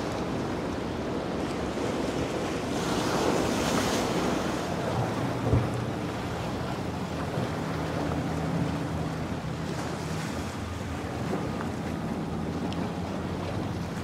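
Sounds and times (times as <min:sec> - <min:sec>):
boat engine humming: 0:00.0 - 0:14.0.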